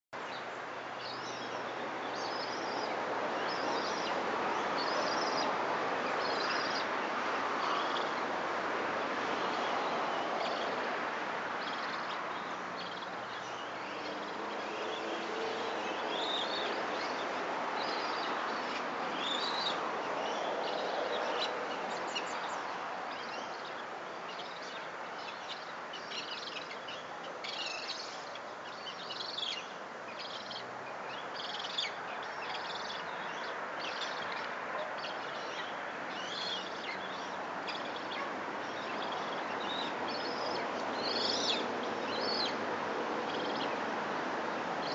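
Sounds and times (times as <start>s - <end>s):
birds chirping: 11.5s - 44.0s.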